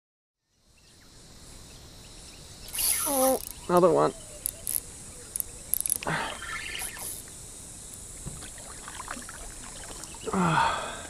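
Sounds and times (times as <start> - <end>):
fish splashing in water: 8.3 - 10.3.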